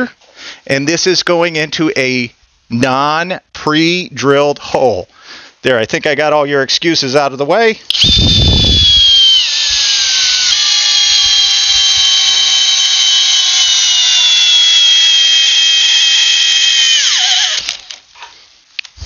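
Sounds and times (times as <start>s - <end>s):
drill motor whine: 7.9s - 18.0s.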